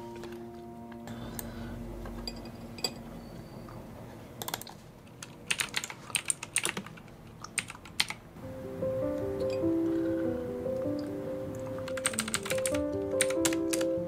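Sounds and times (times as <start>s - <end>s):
computer keyboard typing: 4.4s - 8.2s, 11.5s - 13.9s.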